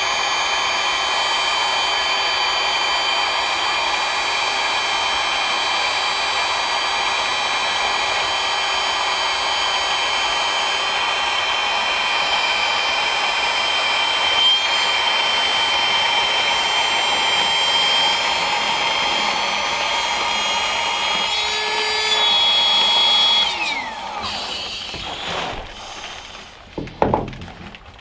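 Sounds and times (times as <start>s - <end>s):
battery air pump whining: 0.0s - 26.6s.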